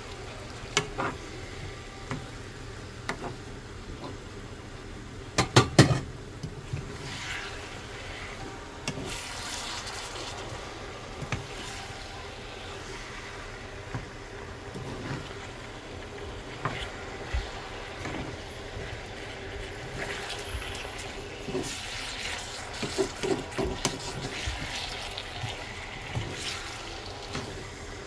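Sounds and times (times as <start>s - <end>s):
sauce sizzling softly: 0.0s - 5.3s, 6.1s - 28.0s
spatula stirring in a wok: 6.7s - 28.0s.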